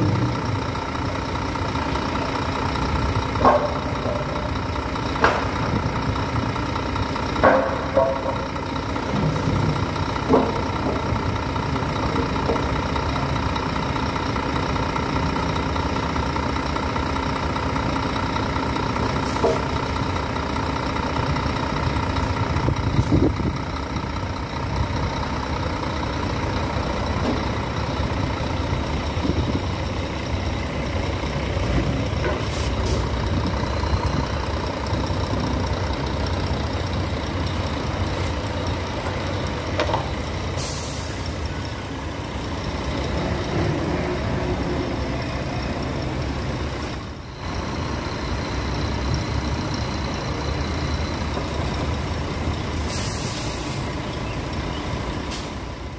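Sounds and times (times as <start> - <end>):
diesel engine running: 0.0 - 55.9
air brakes hissing: 19.2 - 19.7, 32.3 - 33.2, 40.5 - 41.6, 52.8 - 54.1, 55.3 - 55.7.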